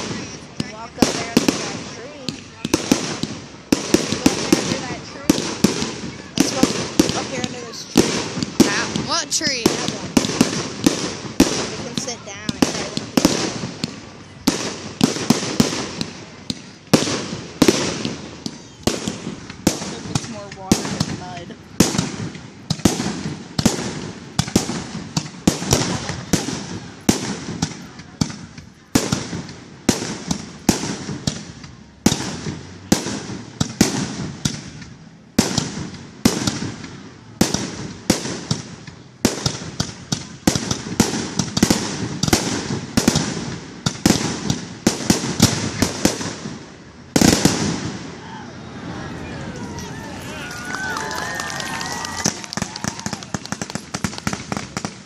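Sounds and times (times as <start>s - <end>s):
fireworks cracking and banging: 0.0s - 55.0s.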